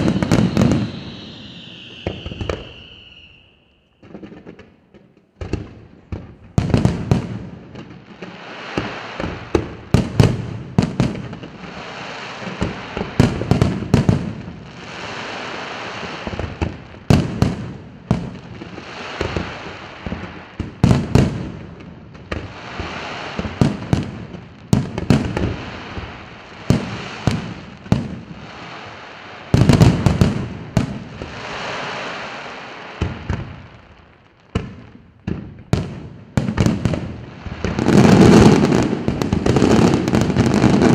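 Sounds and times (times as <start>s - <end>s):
fireworks hissing: 0.0s - 4.4s, 6.8s - 34.8s, 36.4s - 40.9s.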